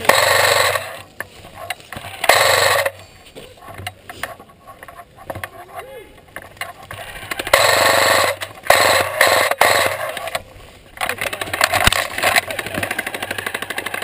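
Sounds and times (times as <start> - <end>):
electric gun firing bursts: 0.0 - 1.0, 2.1 - 3.0, 7.0 - 10.4, 11.3 - 14.0.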